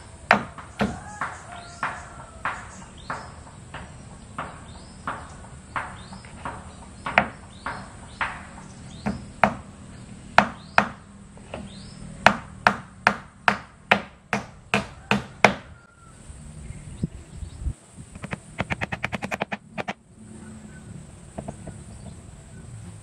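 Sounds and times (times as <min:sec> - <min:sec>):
hammer striking nails into wood: 0:00.2 - 0:15.8, 0:18.2 - 0:20.0.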